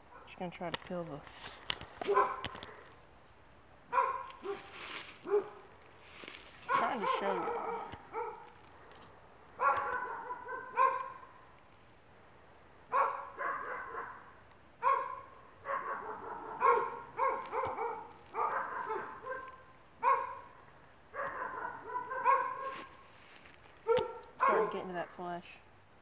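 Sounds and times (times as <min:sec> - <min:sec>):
dog barking: 0:02.1 - 0:02.5, 0:03.9 - 0:05.7, 0:06.7 - 0:08.5, 0:09.6 - 0:11.3, 0:12.9 - 0:22.9, 0:23.8 - 0:24.9.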